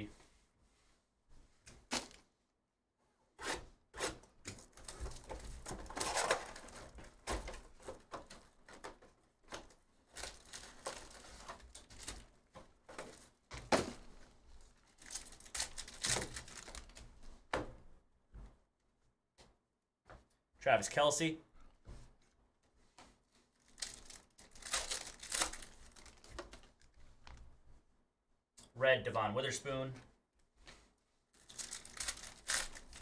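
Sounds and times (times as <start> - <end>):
plastic wrap crinkling and tearing: 4.6 - 7.0, 10.1 - 12.3, 14.8 - 17.0, 23.5 - 27.4, 31.3 - 33.0
card packs being handled: 4.6 - 8.0, 10.1 - 12.3, 14.9 - 17.0, 23.6 - 27.4, 31.4 - 33.0.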